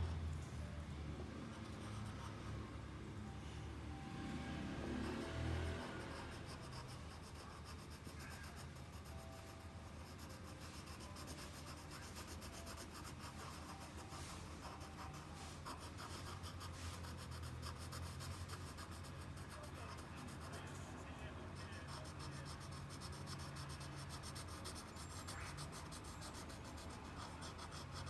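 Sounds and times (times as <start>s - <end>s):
pencil scratching on paper: 1.4s - 2.7s, 4.6s - 28.0s.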